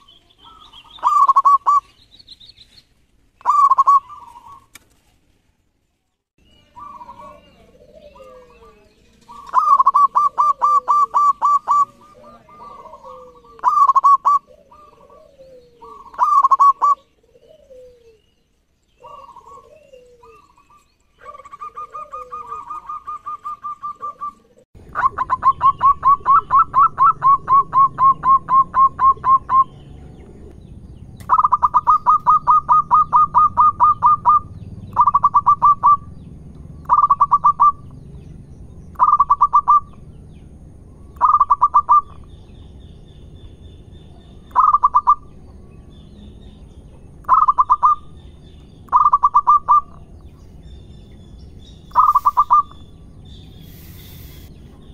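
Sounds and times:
doves cooing: 0.0 - 1.9, 3.4 - 4.7, 6.6 - 18.4, 19.0 - 36.2, 36.8 - 38.0, 38.9 - 40.1, 41.2 - 42.3, 44.2 - 46.4, 47.0 - 48.2, 48.9 - 50.3, 51.9 - 52.8.

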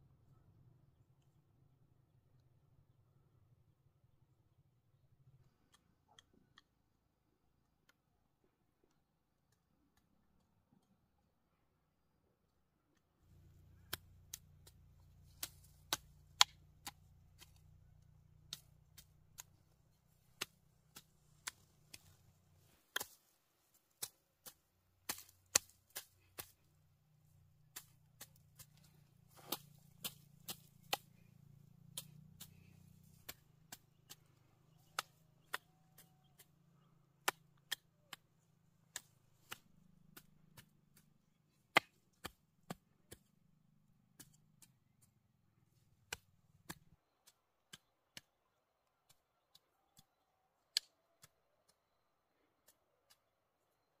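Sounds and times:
hand hoe chopping soil: 13.3 - 43.5, 44.1 - 45.1, 46.0 - 48.3.

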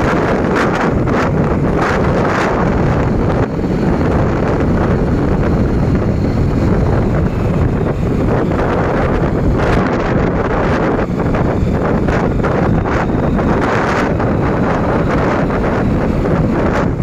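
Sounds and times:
rumbling road and vehicle noise: 0.0 - 17.0
wind buffeting microphone: 0.0 - 17.0.

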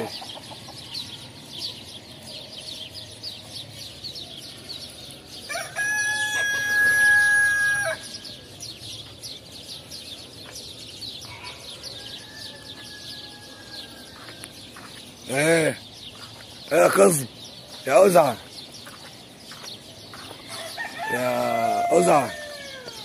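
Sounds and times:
rooster crowing: 5.5 - 8.1, 20.5 - 23.0.

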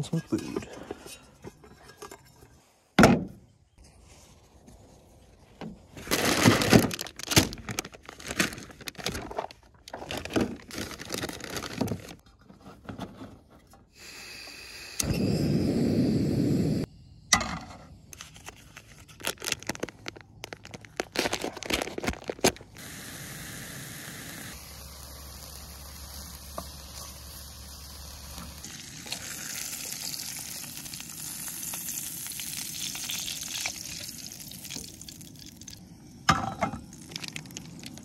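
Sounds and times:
metal clinking and scraping: 0.0 - 2.8
plastic bags rustling: 6.0 - 12.2, 18.3 - 22.8.

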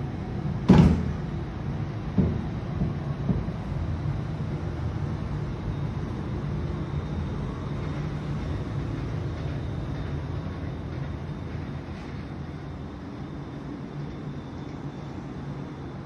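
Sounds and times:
distant city traffic rumble: 0.0 - 16.0.

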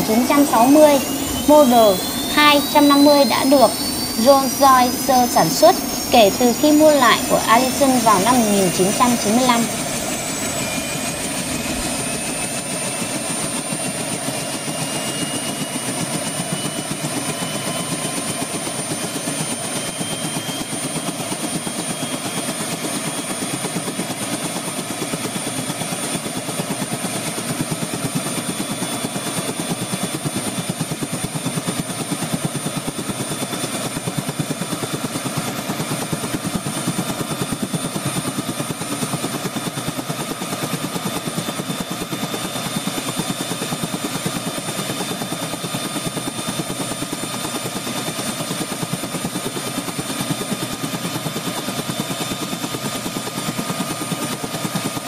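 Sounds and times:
turbine engine whining: 0.0 - 15.8.

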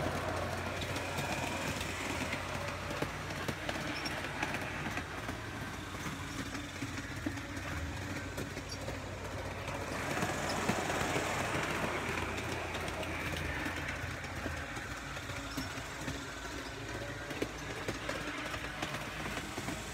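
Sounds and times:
model train wheels clicking on rails: 0.0 - 19.9.

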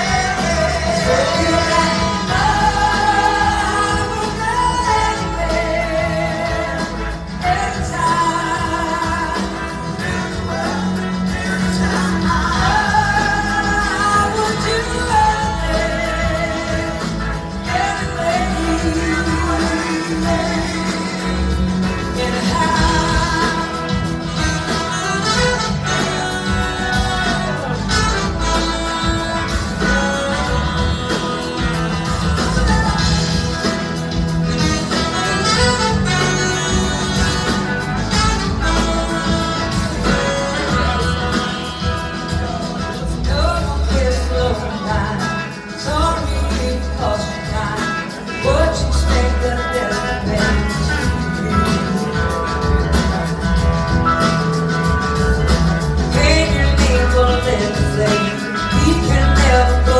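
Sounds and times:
woman singing: 0.0 - 33.8, 38.4 - 52.1, 56.1 - 59.9
live blues-rock band playing: 0.0 - 59.9
horn section playing: 17.6 - 43.0.

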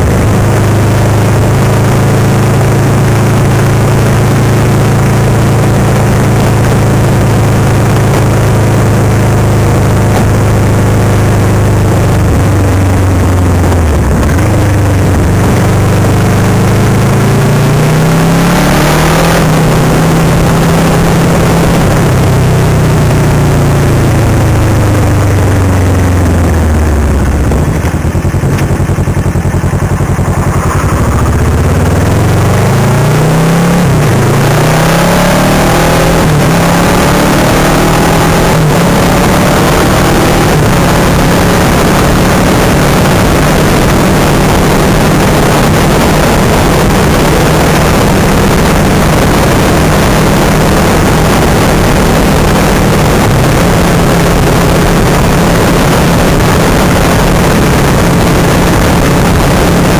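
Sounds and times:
motorcycle engine accelerating: 0.0 - 59.9
rushing wind: 0.0 - 59.9.

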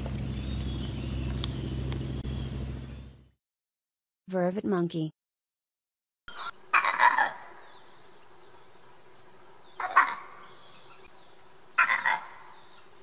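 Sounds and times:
steady low hum: 0.0 - 3.2
monkey calling: 6.3 - 7.7, 9.8 - 10.4, 11.8 - 12.6.

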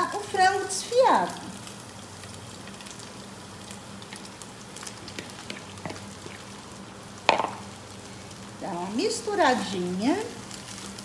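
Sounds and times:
chicken sizzling in hot oil: 0.0 - 11.0
sharp knock: 7.3 - 7.6.

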